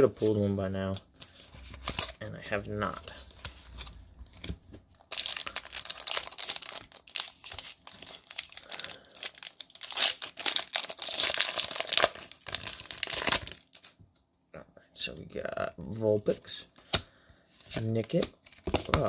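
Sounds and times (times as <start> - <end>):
foil pack crinkling: 5.0 - 13.9.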